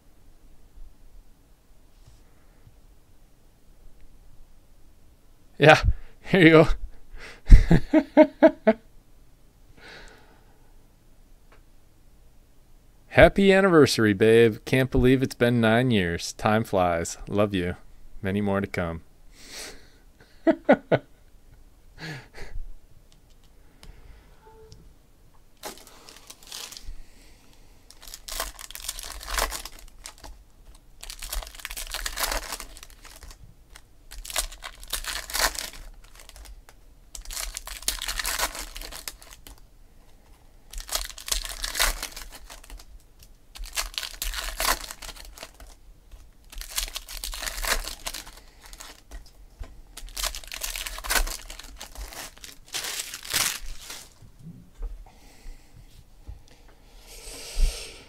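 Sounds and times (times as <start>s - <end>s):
foil wrappers tearing and crinkling: 25.6s - 26.9s, 27.9s - 39.6s, 40.7s - 49.3s, 49.9s - 54.2s.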